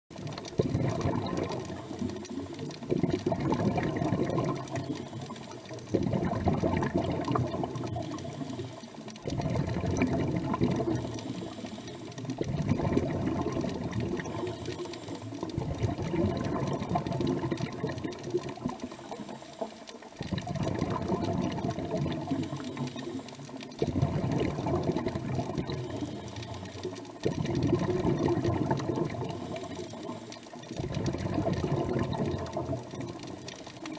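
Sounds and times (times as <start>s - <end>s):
air bubbling underwater: 0.2s - 8.6s, 9.2s - 11.5s, 12.2s - 14.8s, 15.4s - 18.8s, 20.2s - 22.7s, 23.8s - 26.1s, 27.2s - 29.7s, 30.7s - 33.5s.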